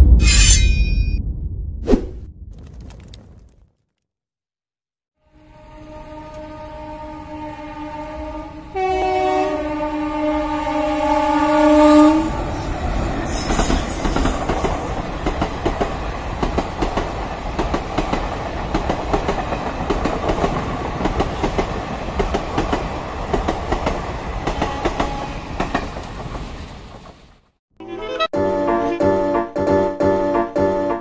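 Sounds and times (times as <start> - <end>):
locomotive horn chord: 5.2 - 12.4, 27.8 - 31.0.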